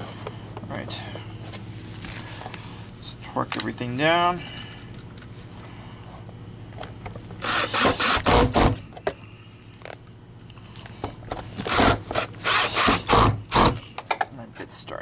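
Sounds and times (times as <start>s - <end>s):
cordless drill driving screws: 7.4s - 8.8s, 11.7s - 13.8s.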